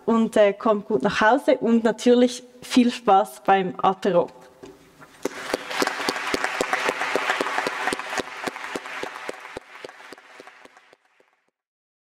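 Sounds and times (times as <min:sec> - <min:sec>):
audience applauding: 0:05.2 - 0:11.5.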